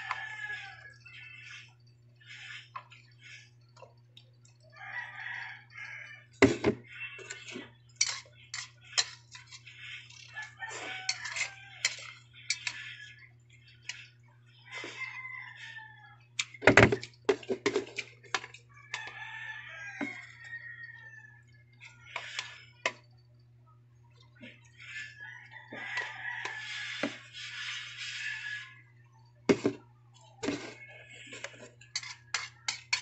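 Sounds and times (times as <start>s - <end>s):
chopsticks clinking on bowls: 7.3s - 13.1s, 31.3s - 33.0s.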